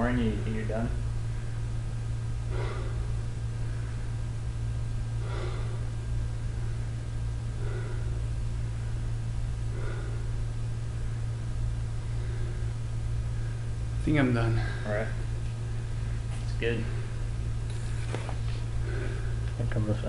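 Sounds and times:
steady low hum: 0.0 - 20.0
person breathing hard: 2.4 - 4.4, 5.1 - 13.8, 18.6 - 19.5.

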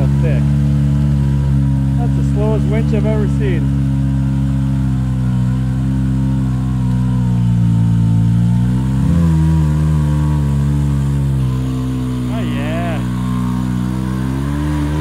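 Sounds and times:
vehicle engine under load: 0.0 - 15.0.

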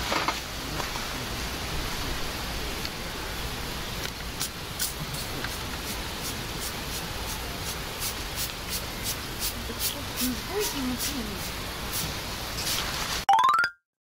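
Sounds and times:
spray bottle squirts: 4.4 - 5.6.

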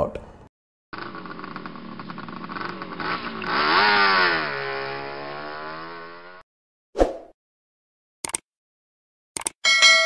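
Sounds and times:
motorcycle engine idling and revving: 1.0 - 6.4.

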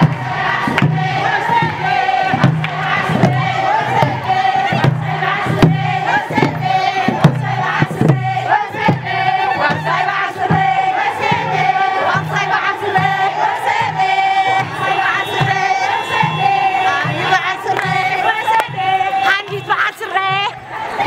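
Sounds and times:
hand drum beating: 0.0 - 13.2
women singing and chanting: 0.0 - 21.0.

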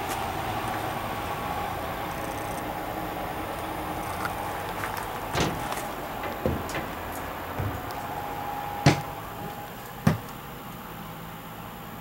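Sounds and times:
steady hum: 0.0 - 12.0
footsteps on metal steps: 4.0 - 10.4.

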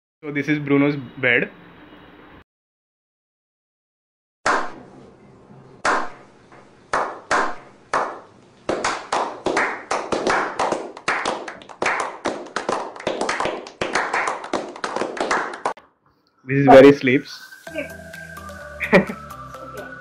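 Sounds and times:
hands clapping: 6.9 - 15.8.

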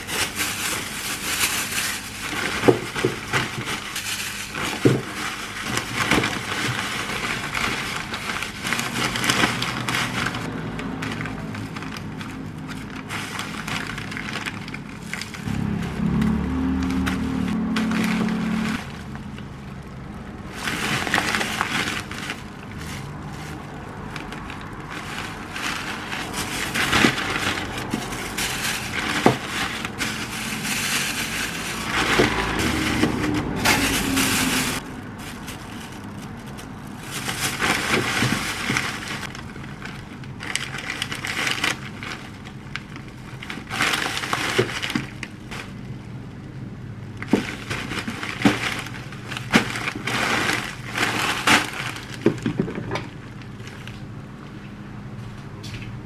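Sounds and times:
plastic bags crinkling: 0.0 - 54.5.

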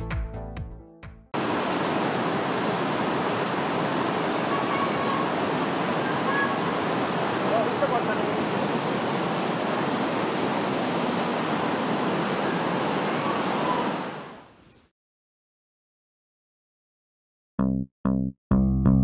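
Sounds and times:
waterfall rushing: 1.4 - 14.5.

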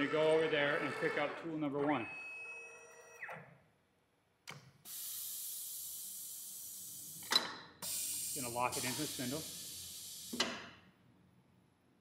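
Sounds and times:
click: 4.4 - 4.7
compressed air hiss: 4.9 - 10.6.

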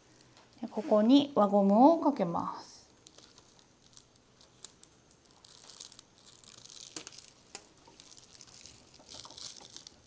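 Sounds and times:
dried stems rustling: 3.0 - 10.0.

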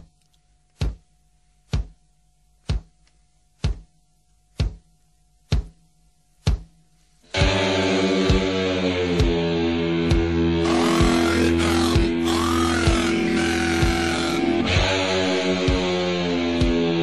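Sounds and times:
loud sustained chords: 7.4 - 15.8.

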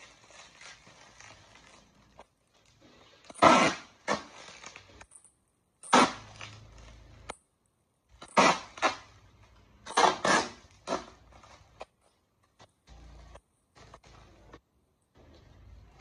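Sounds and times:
bubble wrap crinkling: 0.0 - 5.1
packing tape pulled from tape gun: 2.8 - 5.1, 5.8 - 7.0, 8.2 - 9.2, 9.8 - 11.9.

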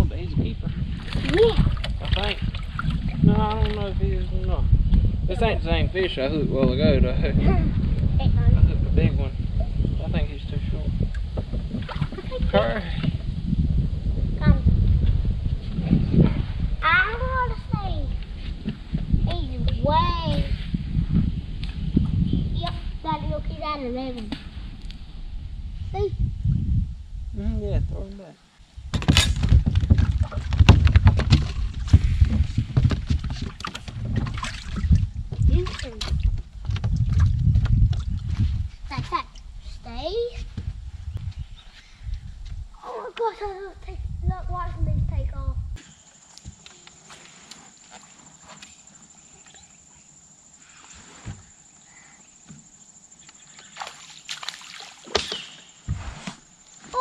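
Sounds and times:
wind rumble on microphone: 0.0 - 45.8
water slapping against boat hull: 0.9 - 3.9, 28.9 - 38.4, 53.5 - 55.6
dull thump: 28.9 - 34.5, 55.1 - 56.5.

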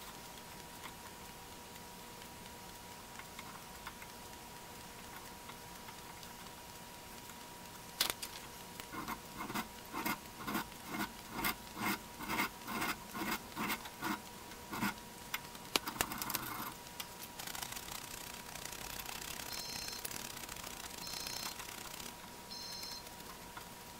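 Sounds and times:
sharp clicks: 15.3 - 23.4.

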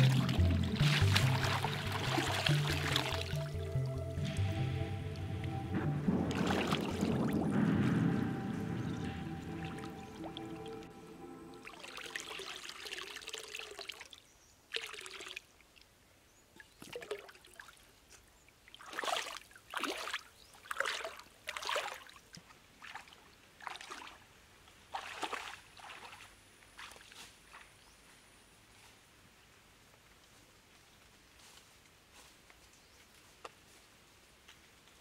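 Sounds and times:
water splashing in a metal bowl: 0.0 - 4.3, 6.2 - 7.6, 11.6 - 15.5, 24.9 - 27.1
legs wading through stream: 0.0 - 4.8, 11.7 - 28.0.

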